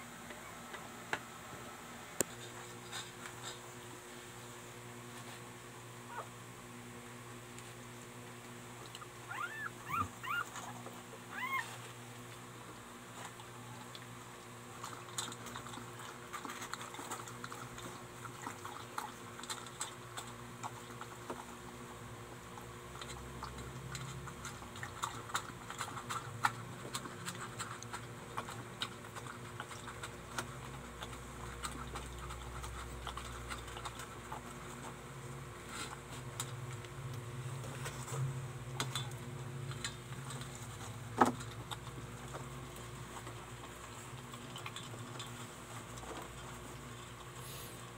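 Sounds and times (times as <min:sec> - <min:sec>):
dog lapping from metal bowl: 0:14.8 - 0:21.5, 0:22.9 - 0:34.6.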